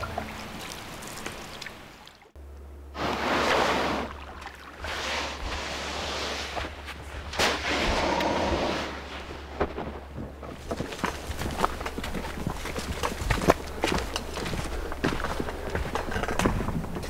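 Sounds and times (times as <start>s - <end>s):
paddle dips and drips: 0.0s - 2.4s, 3.4s - 5.4s.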